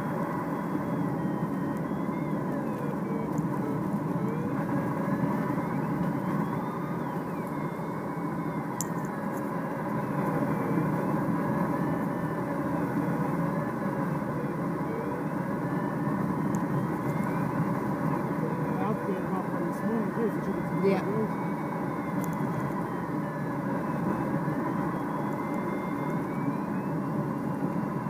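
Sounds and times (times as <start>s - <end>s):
rush of air in cockpit: 0.0s - 20.5s
engine drone: 0.0s - 28.0s
faint wavering high tones: 0.0s - 28.0s.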